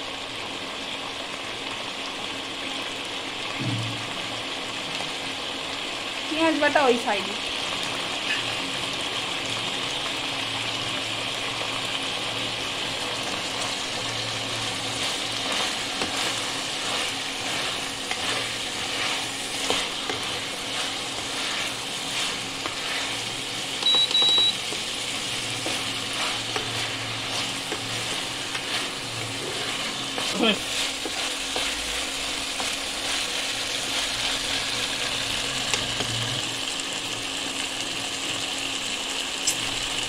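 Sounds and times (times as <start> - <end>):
food sizzling in hot oil: 0.0 - 40.0
spatula scraping and knocking pan: 14.5 - 34.1
high electronic beep: 23.8 - 24.6.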